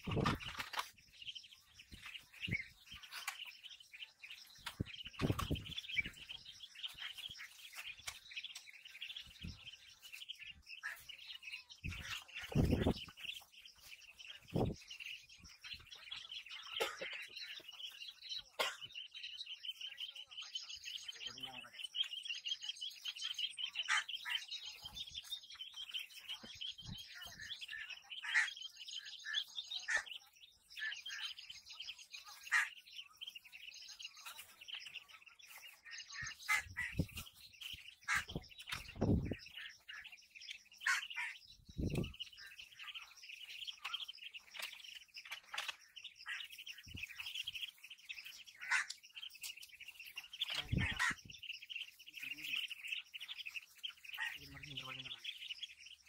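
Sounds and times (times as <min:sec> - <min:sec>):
ducklings peeping: 0:00.0 - 0:56.0.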